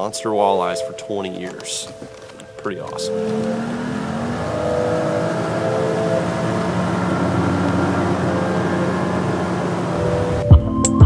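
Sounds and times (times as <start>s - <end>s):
outboard motor running at speed: 2.9s - 10.5s.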